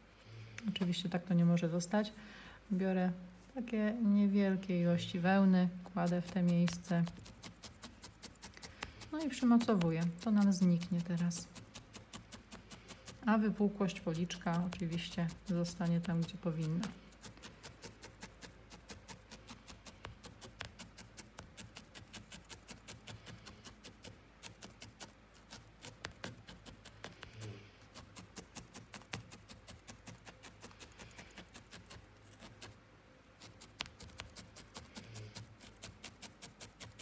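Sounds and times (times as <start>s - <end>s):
felting needle poking wool: 0.6s - 32.8s, 33.4s - 37.0s.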